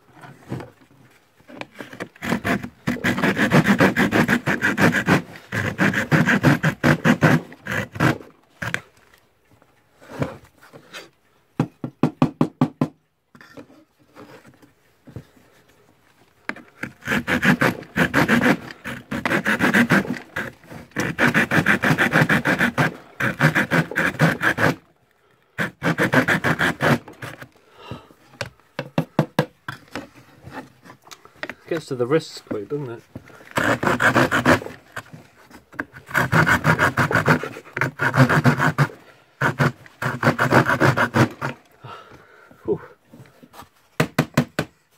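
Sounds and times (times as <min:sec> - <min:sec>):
hand saw cutting plywood: 0:01.5 - 0:08.9, 0:10.0 - 0:11.1, 0:16.4 - 0:24.9, 0:25.5 - 0:41.7.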